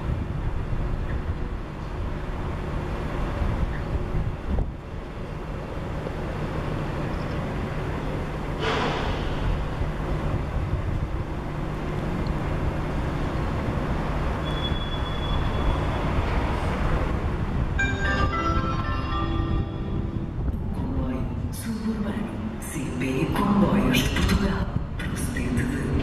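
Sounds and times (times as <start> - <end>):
freight train wheels rumbling on rails: 0.0 - 26.0
short sharp rushing noise: 8.6 - 9.7
faint high squeal: 14.4 - 16.0.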